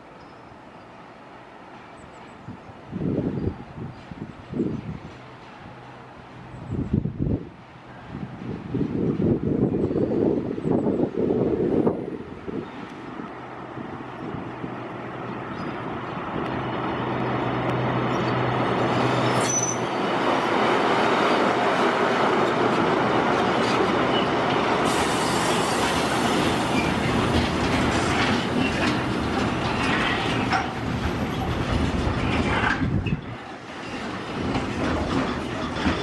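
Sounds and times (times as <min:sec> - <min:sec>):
diesel locomotive engine: 0:00.0 - 0:36.0
wheels squealing: 0:18.2 - 0:20.1
wheels clicking over rail joints: 0:26.5 - 0:36.0.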